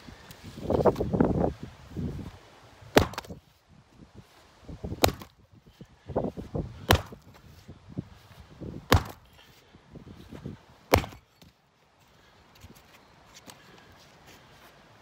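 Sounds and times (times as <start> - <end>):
axe chopping wood: 2.9 - 3.4, 4.9 - 5.4, 6.8 - 7.4, 8.8 - 9.4, 10.9 - 11.5.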